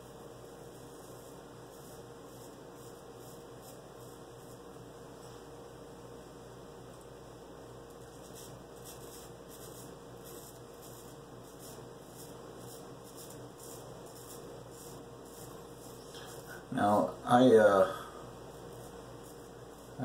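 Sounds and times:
low room hum: 0:00.0 - 0:20.0
razor scraping stubble: 0:08.0 - 0:16.7, 0:18.5 - 0:20.0.

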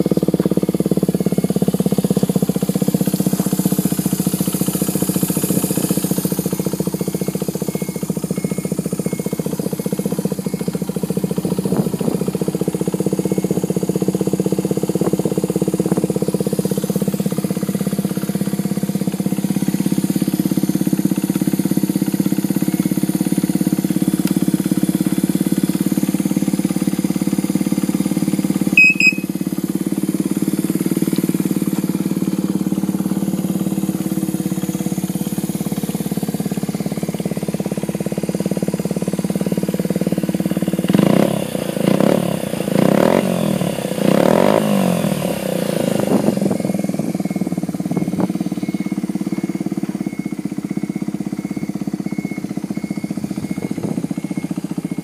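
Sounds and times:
small engine idling: 0:00.0 - 0:55.0
throttle blips: 0:28.8 - 0:29.4.

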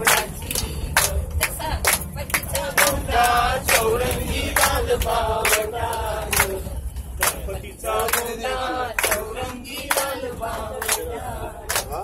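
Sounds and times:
hand claps: 0:00.0 - 0:03.9, 0:06.3 - 0:06.6, 0:07.2 - 0:08.3, 0:09.0 - 0:10.2, 0:10.8 - 0:12.0
group singing in chorus: 0:00.0 - 0:12.0
low rumble of bus: 0:00.0 - 0:12.0.

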